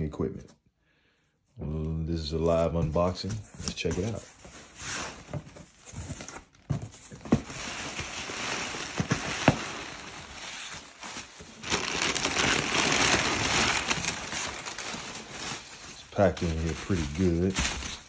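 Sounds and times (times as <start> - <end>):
packing material rustling: 3.6 - 18.0.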